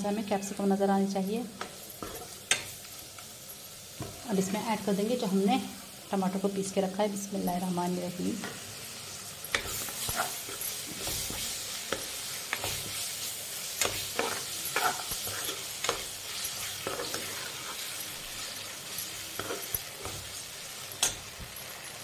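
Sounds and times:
vegetables sizzling in a pan: 0.0s - 22.0s
steel spoon scraping a pan: 1.6s - 3.0s, 9.4s - 22.0s.

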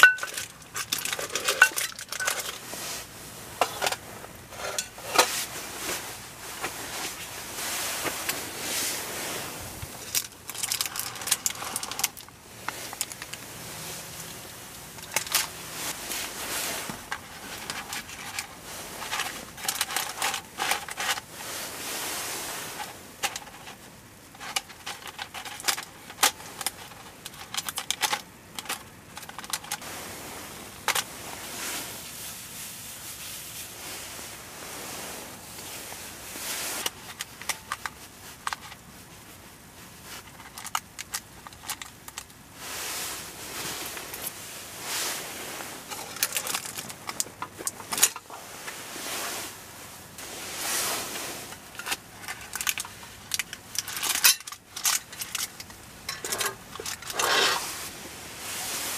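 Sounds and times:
metal lid clinking: 0.0s - 2.6s, 56.1s - 57.6s.

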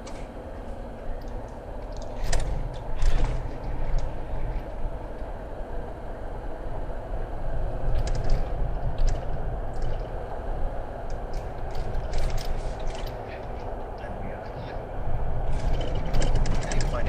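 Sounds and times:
car tyres and engine rumble: 0.0s - 17.0s
gravel ticks and crackles: 7.8s - 14.8s, 15.4s - 17.0s.

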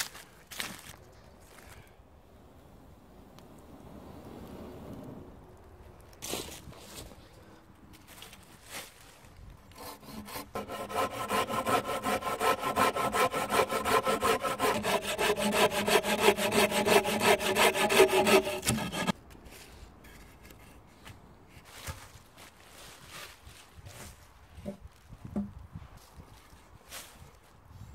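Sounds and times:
hand saw cutting wood: 9.7s - 19.2s.

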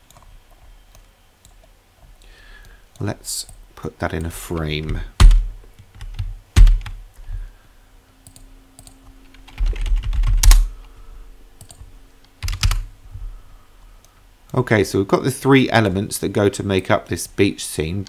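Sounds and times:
faint steady hum: 0.0s - 18.0s
keyboard typing: 4.2s - 7.0s, 8.2s - 10.7s, 11.6s - 12.9s.

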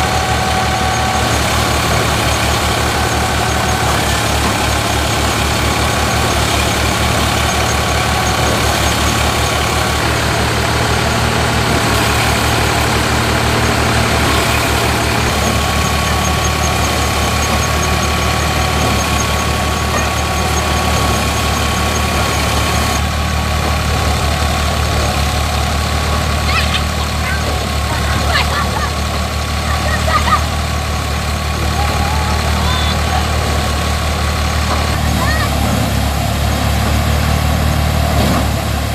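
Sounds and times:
steady high tone: 0.0s - 23.0s
thresher machine noise: 0.0s - 38.9s
tractor diesel engine running: 0.0s - 38.9s.

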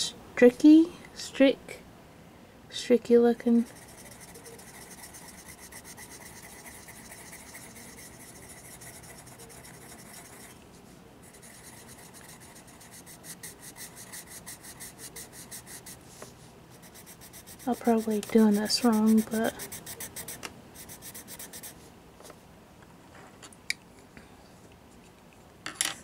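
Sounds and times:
pencil rubbing on paper: 3.6s - 10.6s, 11.2s - 21.8s.

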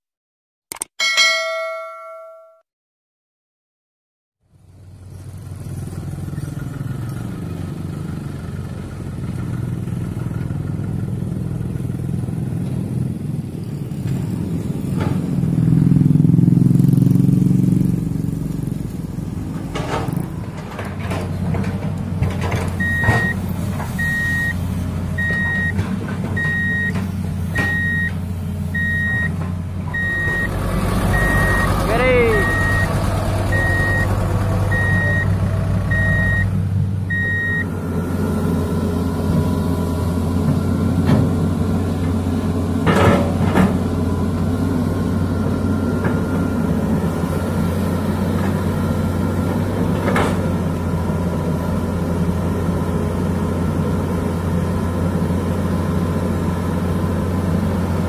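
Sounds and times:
heavy diesel engines running: 4.4s - 58.0s
reversing alarm beeping: 22.8s - 23.4s, 24.0s - 24.6s, 25.2s - 25.8s, 26.4s - 36.5s, 37.1s - 37.7s.

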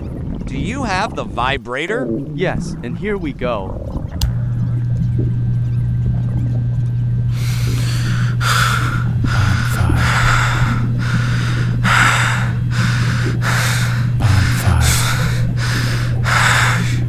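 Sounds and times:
low electric buzz: 0.0s - 17.0s
person panting: 7.4s - 17.0s.

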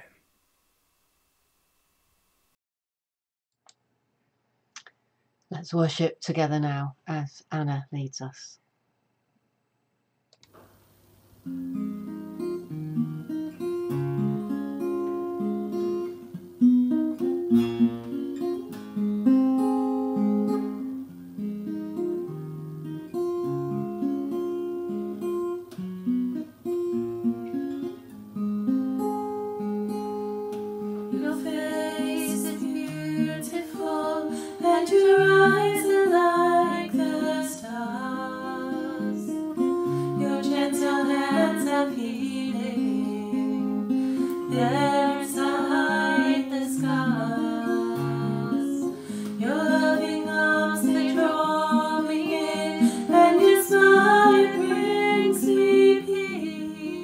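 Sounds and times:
acoustic guitar playing slowly: 10.6s - 57.0s
woman singing: 31.1s - 57.0s.

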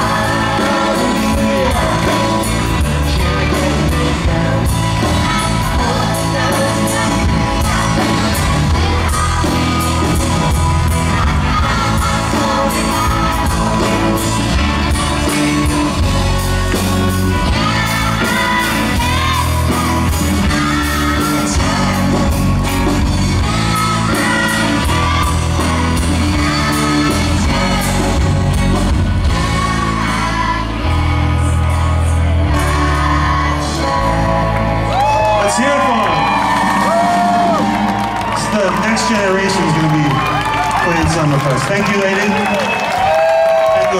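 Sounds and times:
children singing along: 0.0s - 16.0s, 17.4s - 34.8s
man singing lead: 0.0s - 37.6s
live band playing: 0.0s - 43.9s.

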